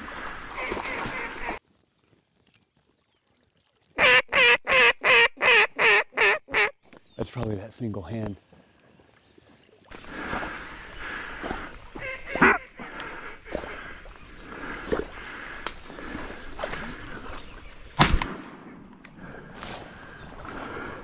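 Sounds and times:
duck quacking: 0:04.0 - 0:06.7, 0:12.0 - 0:12.8
shotgun shot: 0:18.0 - 0:18.8.

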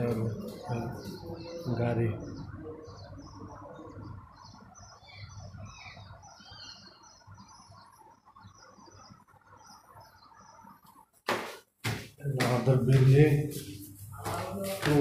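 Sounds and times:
small birds chirping: 0:00.0 - 0:11.5.

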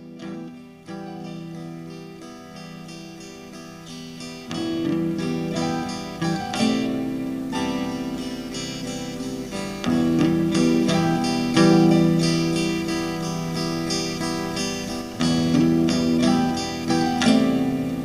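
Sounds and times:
acoustic guitar picking and strumming: 0:00.0 - 0:18.0.

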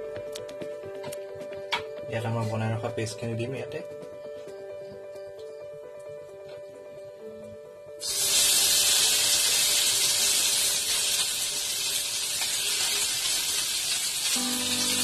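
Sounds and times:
soft background music: 0:00.0 - 0:11.2, 0:14.3 - 0:15.0
paste sizzling in hot oil: 0:08.0 - 0:15.0.

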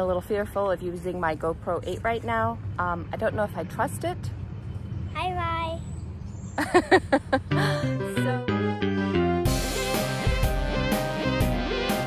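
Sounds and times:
melodic notes: 0:07.5 - 0:12.0
drums and band playing: 0:09.4 - 0:12.0.

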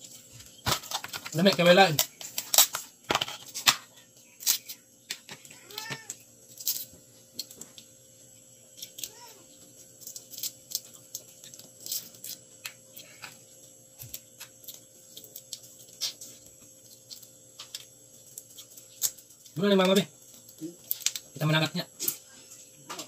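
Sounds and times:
crab shell clicking: 0:19.8 - 0:21.3.

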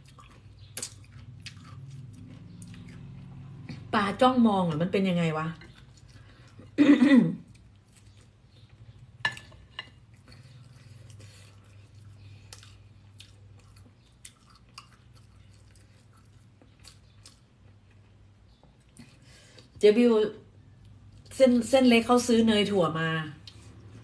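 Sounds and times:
person chewing: 0:00.0 - 0:03.9, 0:05.6 - 0:06.8, 0:07.4 - 0:19.8.

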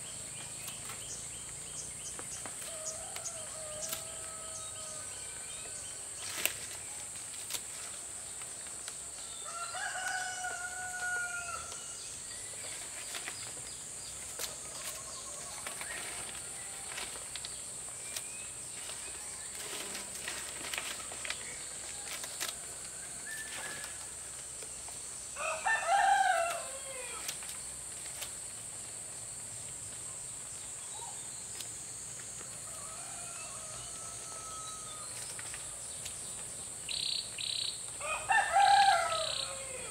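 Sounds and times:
high insect drone: 0:00.0 - 0:39.9
rooster crowing: 0:02.7 - 0:05.9, 0:09.4 - 0:12.0, 0:25.4 - 0:27.3, 0:32.6 - 0:35.2, 0:38.0 - 0:39.9.

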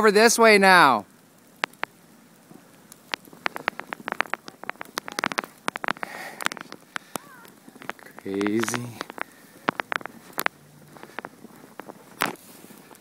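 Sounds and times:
footsteps crunching through snow: 0:03.3 - 0:13.0.

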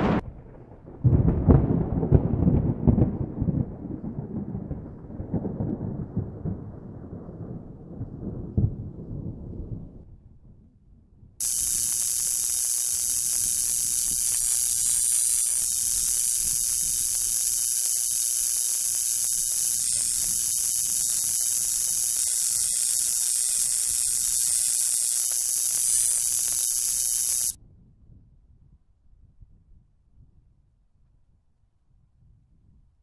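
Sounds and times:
tesla coil sparks hissing: 0:11.4 - 0:27.6.

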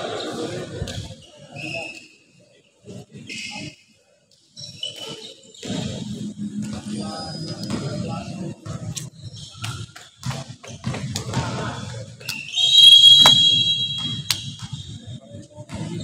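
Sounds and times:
shrill whistle blown: 0:12.3 - 0:14.9.

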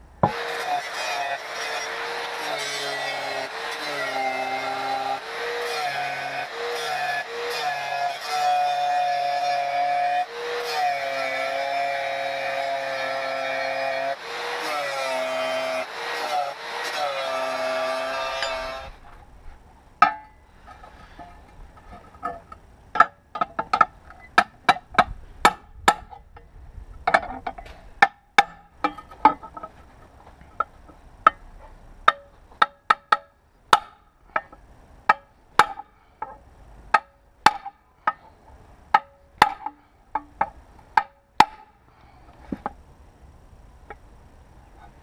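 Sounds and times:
hammer striking metal: 0:20.0 - 0:20.4.

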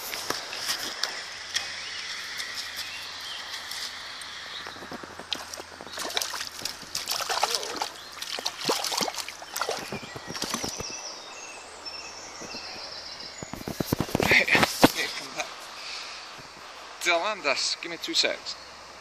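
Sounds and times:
fish splashing in river water: 0:05.3 - 0:10.9.

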